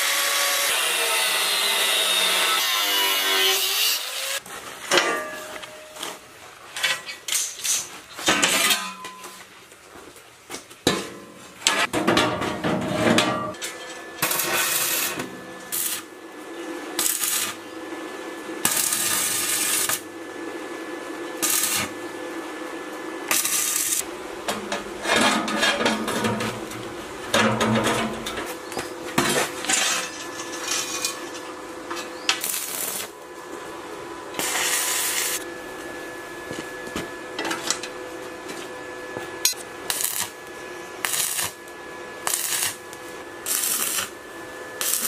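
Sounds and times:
arc welding crackling hiss: 14.2s - 16.2s, 16.9s - 17.7s, 18.6s - 20.1s, 21.4s - 22.1s, 23.2s - 24.1s, 32.2s - 33.2s, 34.4s - 35.5s, 39.8s - 41.6s, 42.2s - 44.2s, 44.8s - 45.0s.

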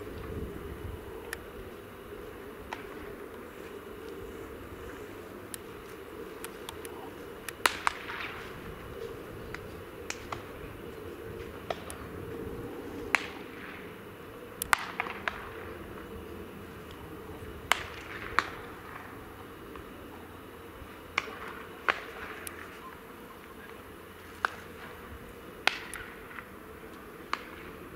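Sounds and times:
low ballpark background noise: 0.0s - 27.9s
baseball bat cracks with echo: 7.5s - 8.6s, 13.1s - 13.9s, 14.6s - 15.8s, 17.6s - 19.1s, 21.1s - 22.7s, 25.6s - 26.5s, 27.3s - 27.8s.

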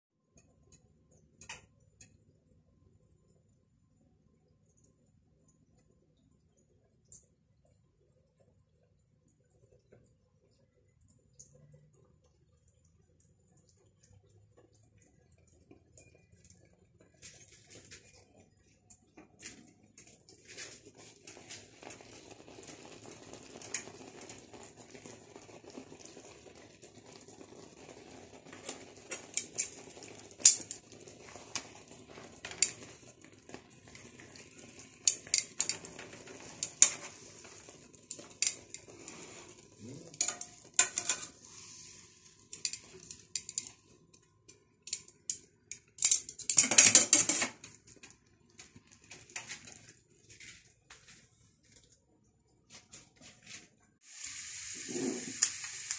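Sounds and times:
steaks sizzling in pan: 35.0s - 43.7s, 54.0s - 55.9s
fork scraping pan: 38.4s - 41.8s.

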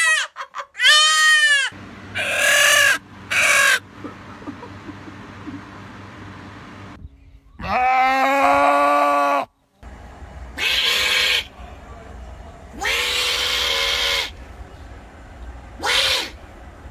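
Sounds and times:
goat bleating: 0.0s - 3.8s, 7.6s - 9.5s, 10.6s - 11.6s, 12.7s - 14.4s, 15.8s - 16.4s
opossum hissing cries: 1.5s - 3.8s, 10.6s - 11.5s, 12.8s - 14.4s, 15.8s - 16.4s.

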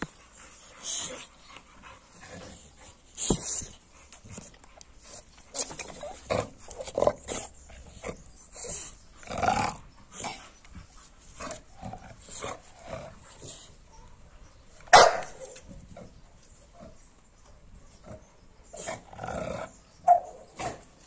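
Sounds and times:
dog growling and woofing: 5.4s - 10.4s
dog barking loudly: 14.9s - 15.5s, 20.0s - 20.8s.

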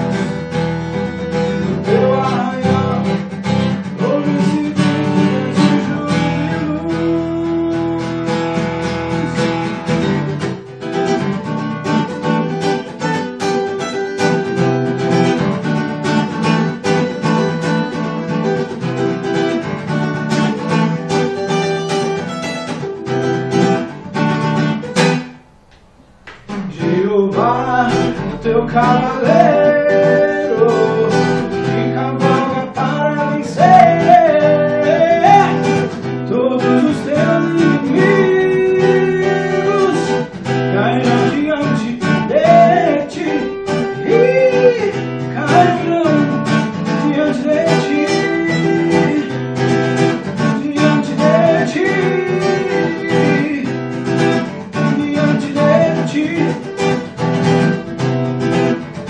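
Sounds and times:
acoustic guitar strummed: 0.0s - 59.0s
man singing wordlessly: 1.7s - 9.2s, 26.5s - 57.1s.

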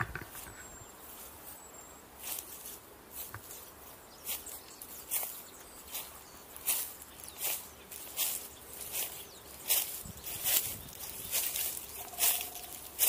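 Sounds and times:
footsteps through dry grass: 0.2s - 13.0s
faint bird call: 11.6s - 13.0s.

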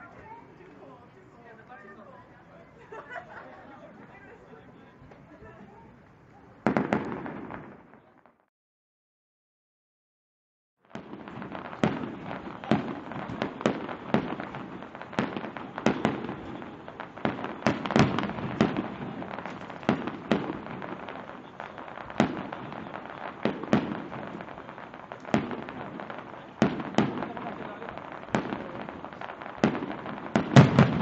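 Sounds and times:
fireworks bursting: 5.1s - 8.5s, 10.9s - 31.0s.

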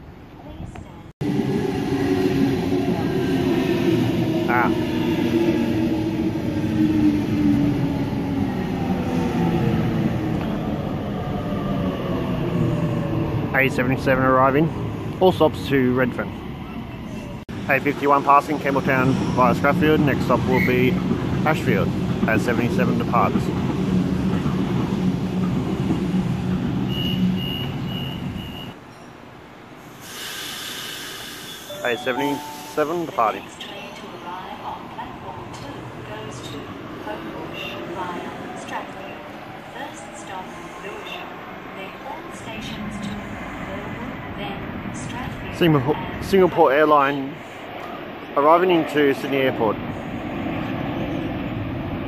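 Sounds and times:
electric train rumble and hum: 0.0s - 52.0s
train wheels rumbling: 17.6s - 28.7s
high door-closing beeps: 27.0s - 29.1s, 31.7s - 33.0s
train hiss: 29.8s - 33.4s.

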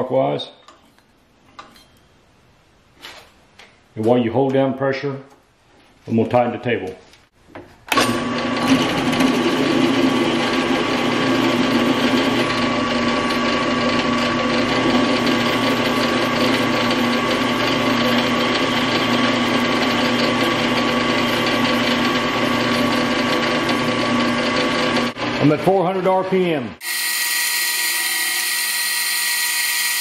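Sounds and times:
drill press motor hum: 7.9s - 25.4s, 26.8s - 30.0s
drill bit whine cutting steel: 8.6s - 25.4s, 26.8s - 30.0s.

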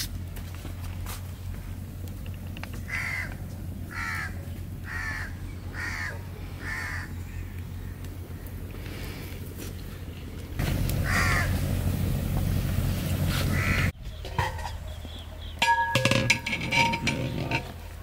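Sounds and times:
bird cawing: 2.8s - 9.1s, 10.9s - 11.6s, 13.5s - 14.0s
ladle knocking metal pot: 14.2s - 14.8s, 15.6s - 17.8s.

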